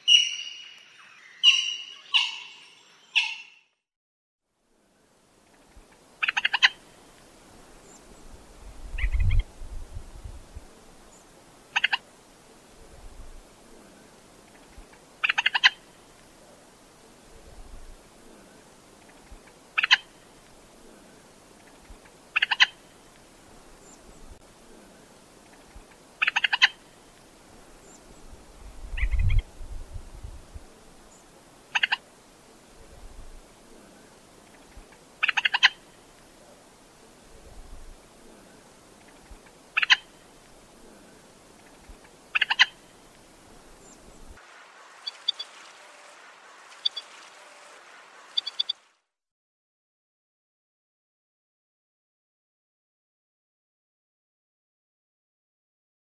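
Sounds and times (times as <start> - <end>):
moorhen calling: 0.0 - 3.8, 5.9 - 7.1, 7.8 - 9.5, 11.0 - 12.1, 15.0 - 16.2, 18.5 - 25.2, 25.8 - 27.2, 28.9 - 29.5, 31.1 - 32.7, 33.7 - 36.6, 38.3 - 44.4.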